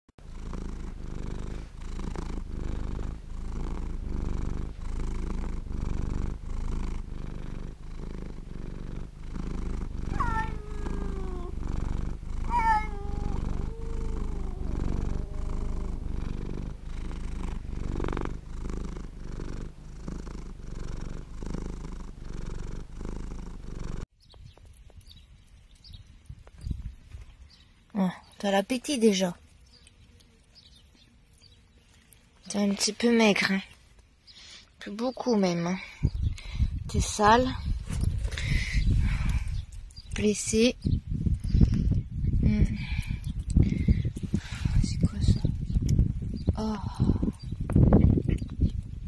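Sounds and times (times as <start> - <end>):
cat purring: 0.2 - 24.1
cat meowing: 10.1 - 11.6, 12.4 - 16.2.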